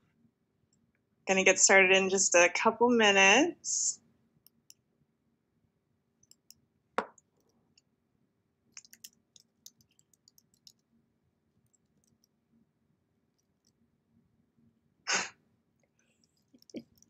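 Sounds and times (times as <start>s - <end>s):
computer mouse clicks: 8.8s - 10.8s.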